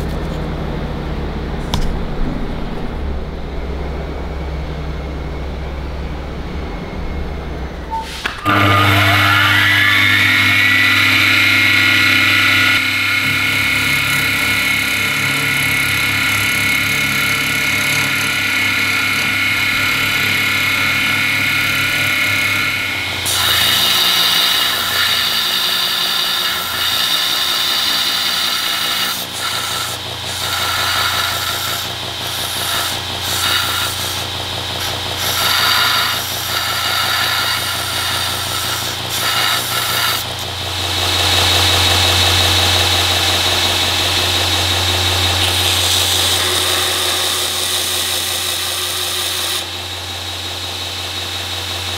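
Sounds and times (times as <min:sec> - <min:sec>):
milling machine cutting metal: 0:06.7 - 0:51.9
belt grinder running: 0:08.3 - 0:51.9.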